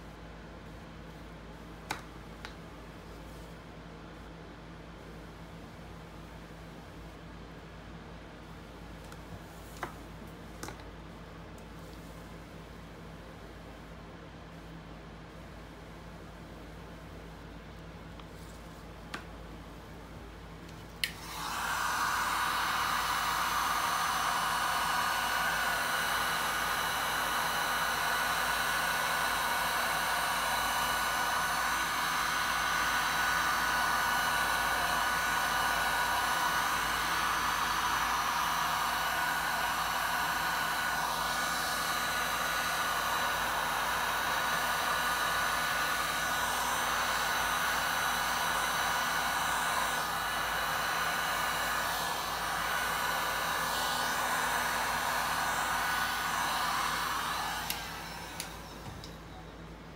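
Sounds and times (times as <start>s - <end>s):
heat gun fan whirring: 0.0s - 14.6s, 15.3s - 59.9s
heat gun switch click: 21.0s - 21.2s, 57.6s - 59.2s.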